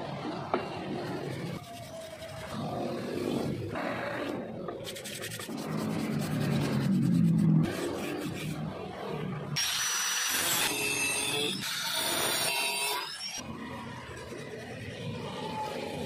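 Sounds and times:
sandpaper rubbing on steel: 0:01.5 - 0:08.7.

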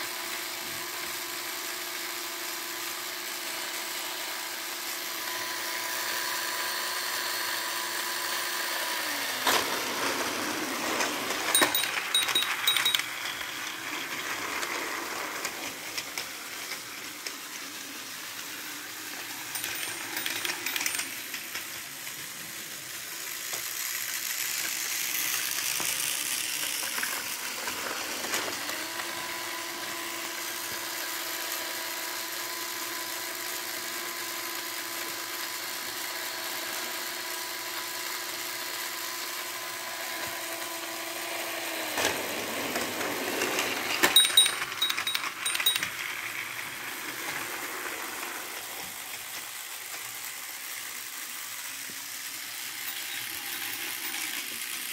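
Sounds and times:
toy train motor whirring: 0:00.0 - 0:54.9
clicks and clatter: 0:11.5 - 0:13.8, 0:19.5 - 0:21.7, 0:43.9 - 0:46.0.

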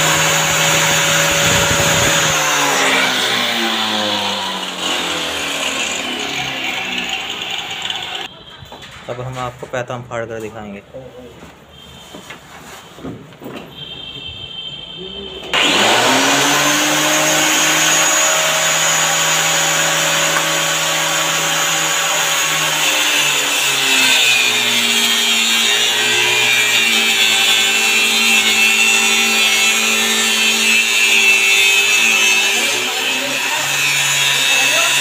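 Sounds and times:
blade whining cutting wood: 0:00.0 - 0:08.3, 0:15.5 - 0:35.0
electric cutter motor running: 0:00.0 - 0:08.3, 0:15.5 - 0:35.0.

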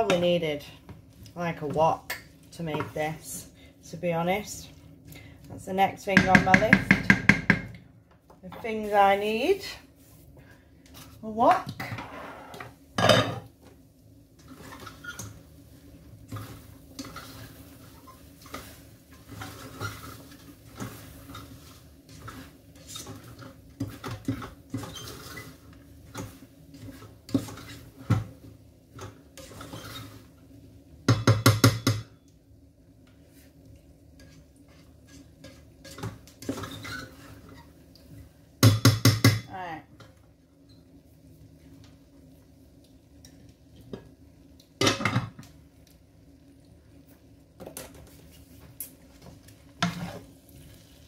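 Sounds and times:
meat frying pops and crackles: 0:12.8 - 0:51.0.

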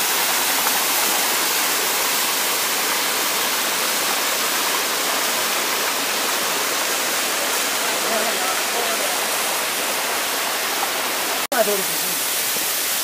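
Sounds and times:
waterfall hiss: 0:00.0 - 0:13.0.

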